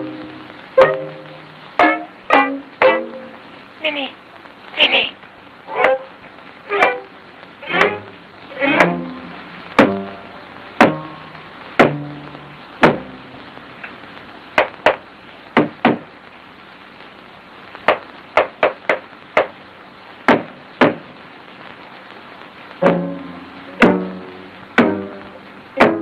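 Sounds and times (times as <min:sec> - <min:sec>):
plucked low string notes: 0:00.0 - 0:03.4, 0:05.7 - 0:06.1, 0:06.7 - 0:13.4, 0:22.8 - 0:26.0
film soundtrack hiss: 0:00.0 - 0:26.0
sharp wooden knocks: 0:05.7 - 0:06.1, 0:07.7 - 0:09.2, 0:09.8 - 0:10.1, 0:10.8 - 0:12.2, 0:12.8 - 0:13.2, 0:14.6 - 0:15.0, 0:15.6 - 0:16.1, 0:17.8 - 0:19.6, 0:20.3 - 0:21.1.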